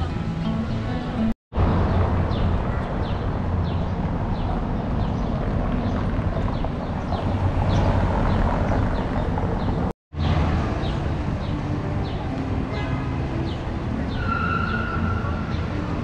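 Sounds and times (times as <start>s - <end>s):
low rumble of traffic: 0.0s - 16.0s
wind on microphone: 1.6s - 9.9s.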